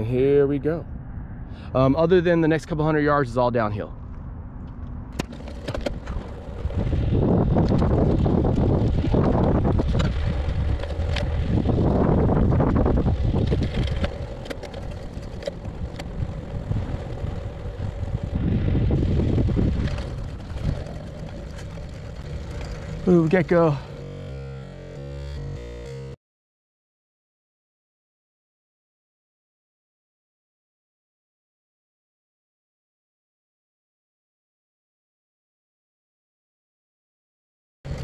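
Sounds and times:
wind buffeting microphone: 0.0 - 24.0
tyres rumbling on asphalt: 1.6 - 25.0.

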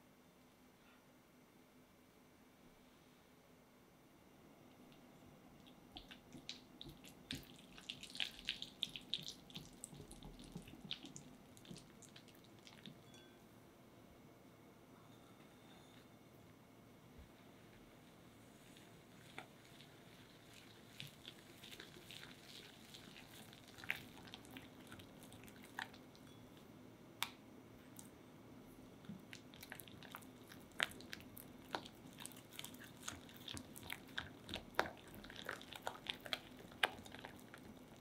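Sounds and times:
faint steady hum: 0.0 - 38.0.

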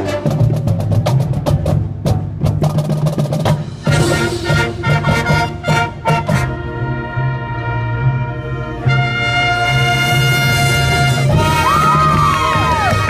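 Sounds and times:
percussion hit: 0.3 - 6.4
brass section chord: 3.8 - 12.2.

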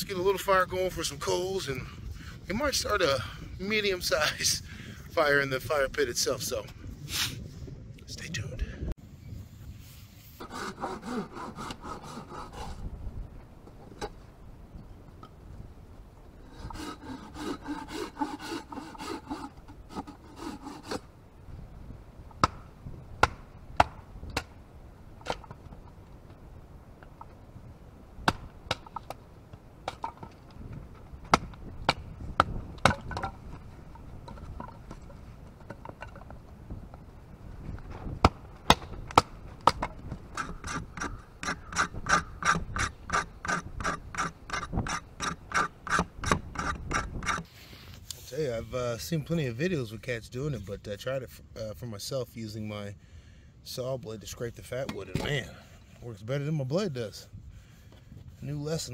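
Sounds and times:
saw blade scraping wood: 10.3 - 12.9, 16.4 - 21.1, 40.3 - 47.5
folding saw cutting branch: 10.4 - 12.9, 16.4 - 21.1
sharp wooden knocks: 22.3 - 24.6, 28.2 - 29.2, 29.8 - 36.4, 37.9 - 47.4.

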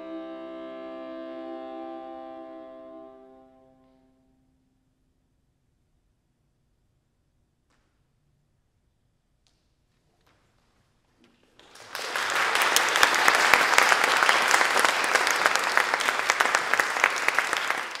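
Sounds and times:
audience applause: 11.6 - 18.0.

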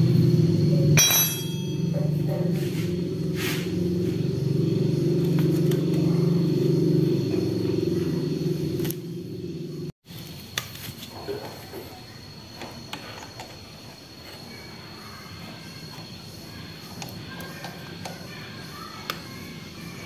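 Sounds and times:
steady low hum: 0.0 - 12.7.

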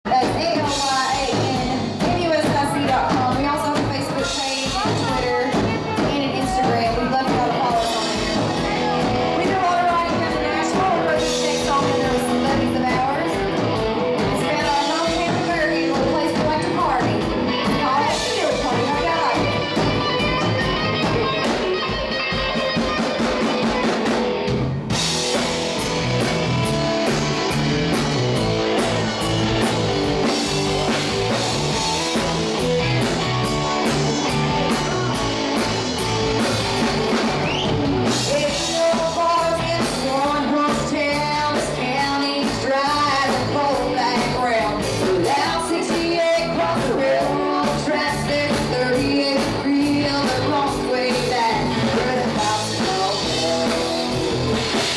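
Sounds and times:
bass guitar: 0.0 - 54.9
drum kit: 0.0 - 54.9
electric guitars: 0.1 - 54.9
women singing: 38.3 - 54.2.

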